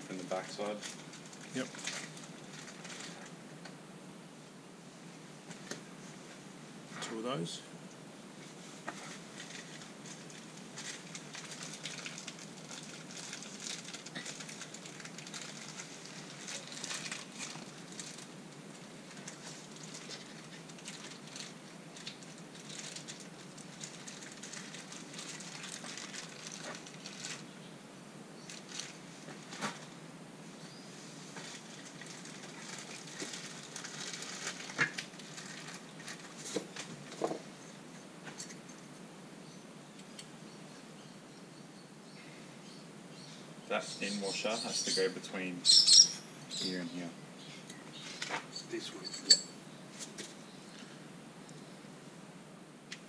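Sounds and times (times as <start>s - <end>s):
metal parts rustling: 48.0s - 49.5s.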